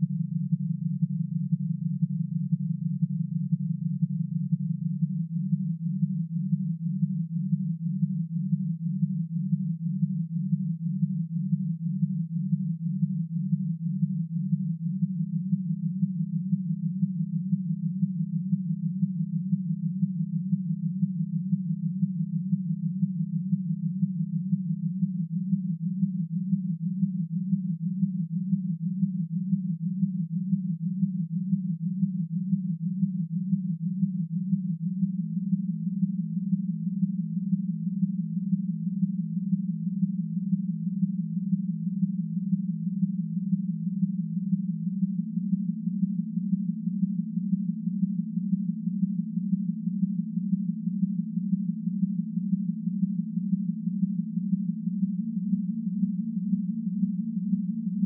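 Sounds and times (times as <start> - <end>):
beating low sine tone chord: 0.0 - 58.0.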